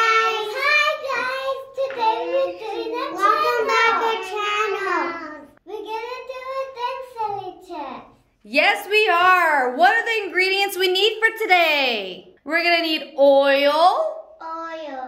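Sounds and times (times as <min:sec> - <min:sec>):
young children singing: 0:00.0 - 0:05.4.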